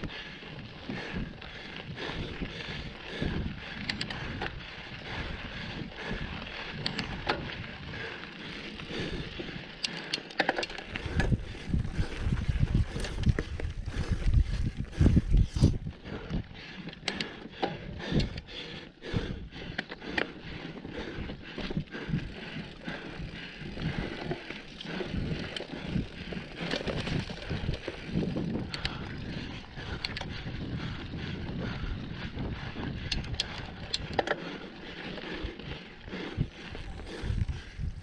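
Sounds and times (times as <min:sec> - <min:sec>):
bike rattling over bumps: 0:00.0 - 0:38.0
bike tyres on dirt trail: 0:00.0 - 0:38.0.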